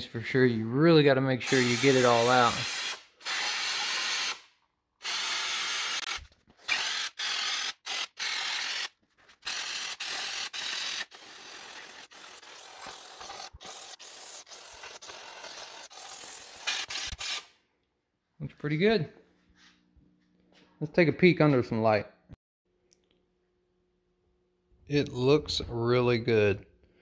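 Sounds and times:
aerosol spray hissing: 1.4s - 4.4s, 9.5s - 15.6s.

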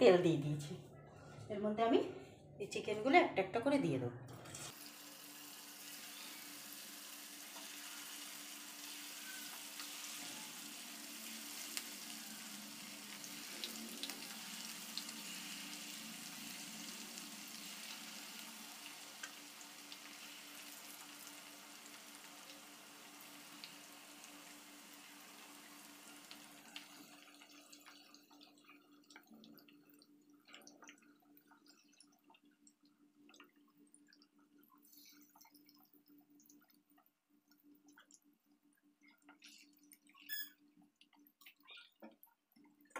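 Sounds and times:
chicken frying in hot oil: 4.7s - 37.0s.

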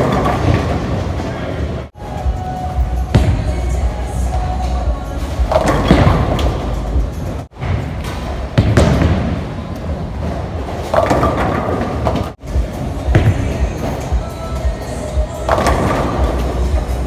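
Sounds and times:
bowling pins crashing: 0.0s - 1.2s, 5.2s - 14.1s, 15.4s - 16.8s
bowling alley din: 0.0s - 17.0s
bowling ball rolling: 8.1s - 14.0s.

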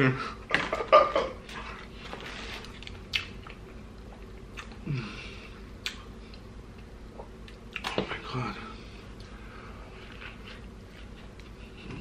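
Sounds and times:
chewing food: 2.7s - 4.8s.

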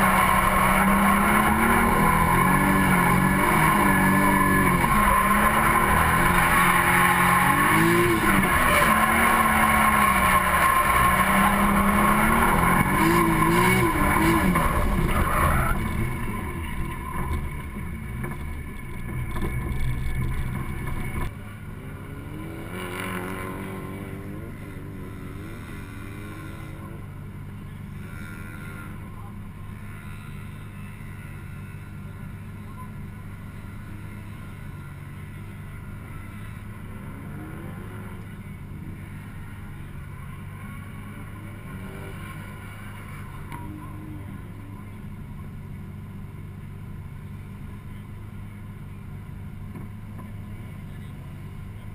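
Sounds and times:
tyres squealing: 0.0s - 18.2s
car engine revving: 0.0s - 51.9s.

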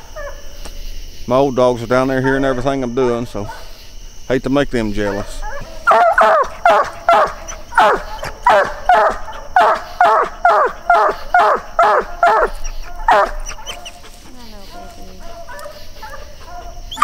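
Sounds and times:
hound barking: 2.2s - 2.8s, 3.4s - 3.8s, 5.0s - 17.0s.

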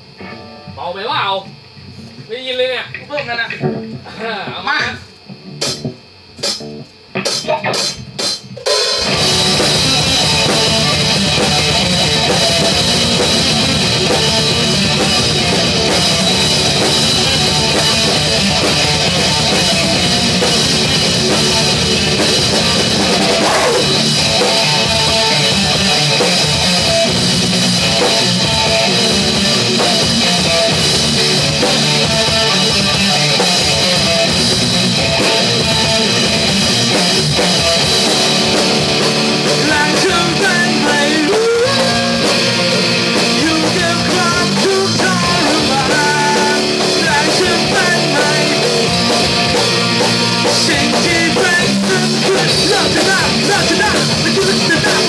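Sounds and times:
electric guitar: 0.0s - 55.0s
drum kit: 2.9s - 55.0s.

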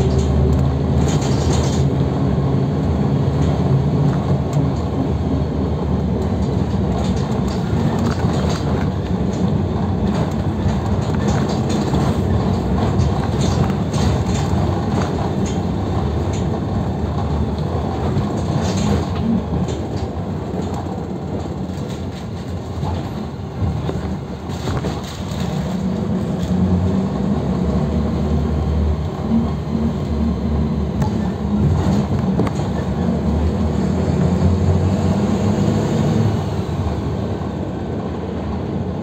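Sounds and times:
rattles and knocks from bus body: 0.0s - 26.6s, 30.9s - 34.7s
bus engine rumble: 0.0s - 39.0s.

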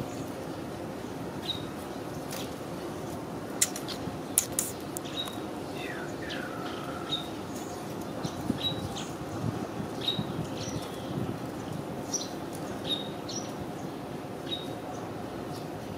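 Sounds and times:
sharp clicks: 3.6s - 5.4s.

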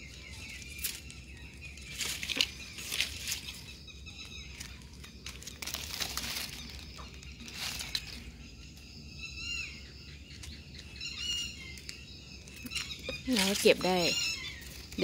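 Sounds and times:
wet leaves rustling: 0.0s - 8.5s, 12.5s - 15.0s
bird calls: 0.0s - 15.0s.

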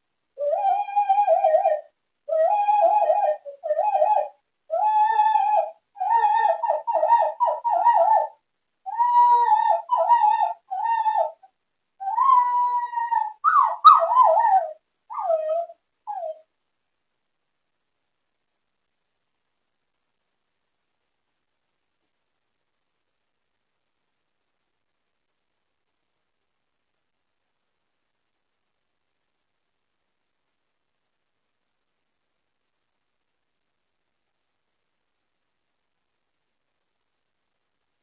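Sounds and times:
dog howling: 0.4s - 8.3s, 8.9s - 11.4s, 12.0s - 16.4s
dog yelping: 12.2s - 16.4s.

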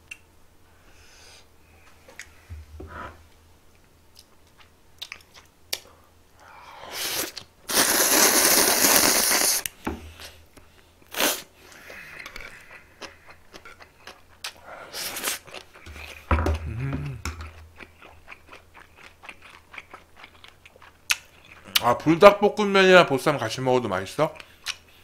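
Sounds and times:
soft chewing: 3.7s - 6.4s, 11.6s - 21.9s, 24.2s - 25.0s
person slurping noodles: 6.8s - 9.6s.

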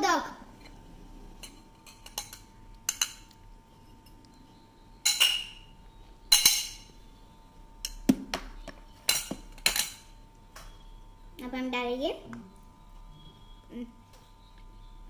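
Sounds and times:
kitchenware clinking against bowl: 1.4s - 4.3s, 5.0s - 7.0s, 9.0s - 10.2s.

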